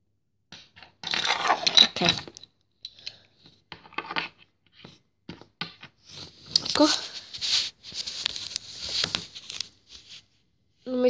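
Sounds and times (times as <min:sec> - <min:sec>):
packaging scraping and rustling: 0:06.1 - 0:09.8.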